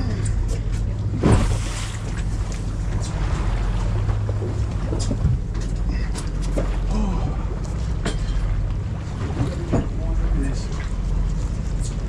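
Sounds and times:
boat engine droning: 0.0 - 12.0.

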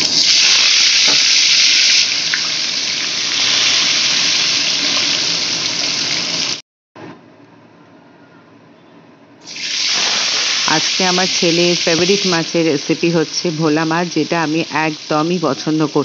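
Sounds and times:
fish frying in hot oil: 0.0 - 6.6, 9.4 - 12.3.

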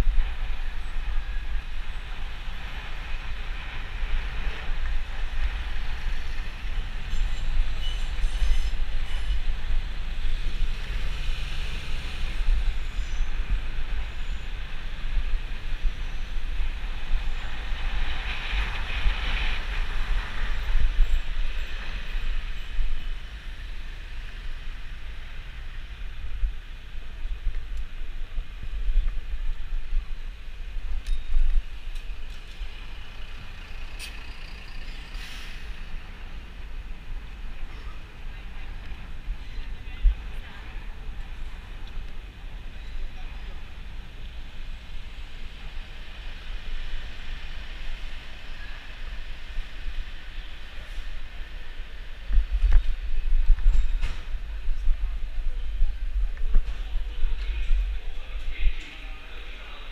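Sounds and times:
passing vehicles: 0.0 - 59.9
wind rumbling on microphone: 0.0 - 59.9
tyre hiss: 35.1 - 35.8.

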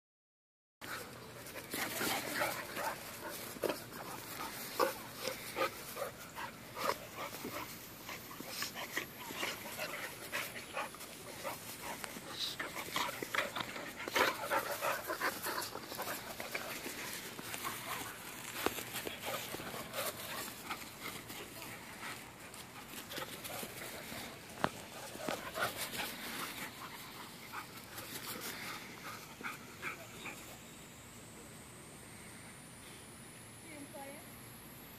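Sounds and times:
paws scuffling on grass: 0.8 - 30.7
dogs playing: 0.8 - 31.0.

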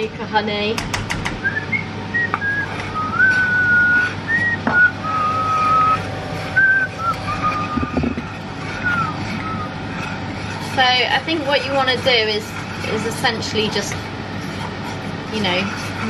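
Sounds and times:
person whistling a slow tune: 1.4 - 6.0, 6.6 - 8.0.

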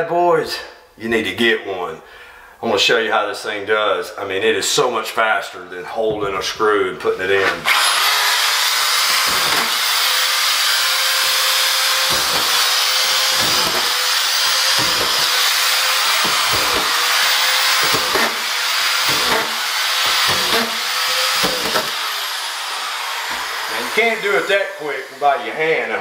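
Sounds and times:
screw gun whining: 7.6 - 25.4.

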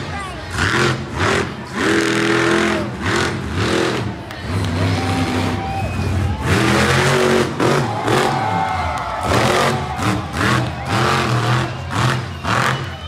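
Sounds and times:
truck engine revving hard: 0.0 - 13.0.

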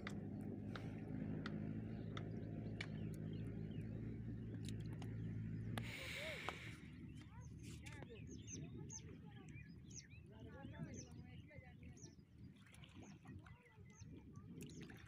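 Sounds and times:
low engine drone: 0.0 - 11.2.

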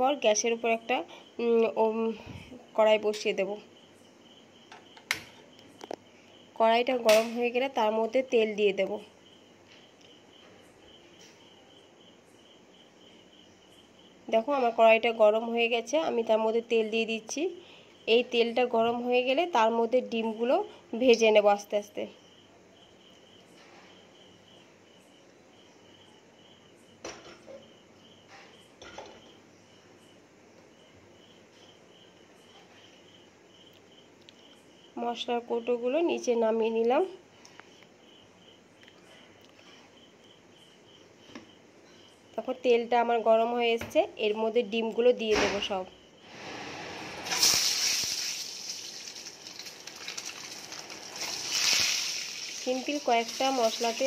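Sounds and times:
cricket chirping: 0.0 - 43.5, 44.3 - 54.0
hot oil sizzling: 46.3 - 54.0.

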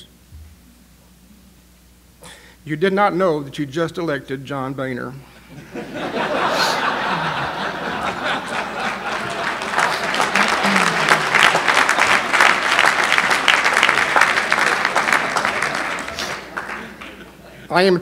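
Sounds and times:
audience laughing: 5.5 - 17.7
audience applauding: 6.4 - 17.7.

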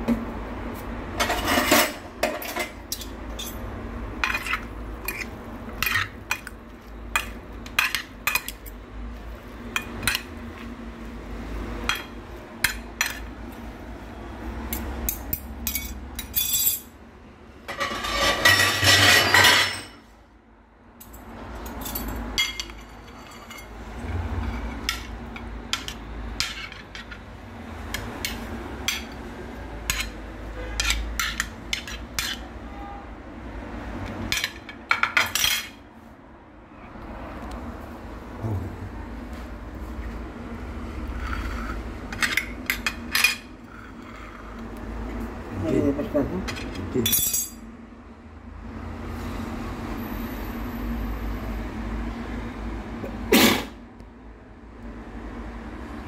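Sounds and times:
fork clinking and scraping plate: 1.2 - 3.6, 4.2 - 6.6, 17.7 - 20.0, 29.8 - 32.5.

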